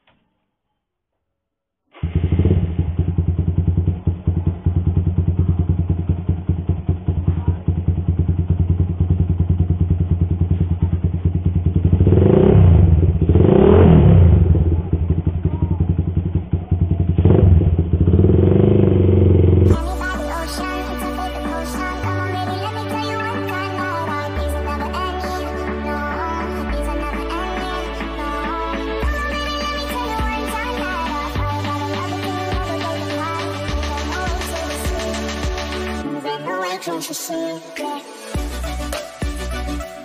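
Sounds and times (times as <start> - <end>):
motorcycle engine revving: 1.9 - 20.6.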